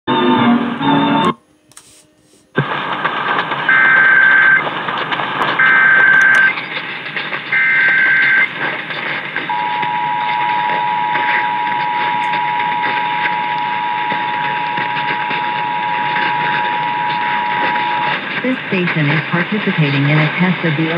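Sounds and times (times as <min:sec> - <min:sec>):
radio data header bursts: 0:00.4 - 0:20.9
radio hiss: 0:00.4 - 0:20.9
two-tone attention signal: 0:05.6 - 0:06.5, 0:09.5 - 0:18.2.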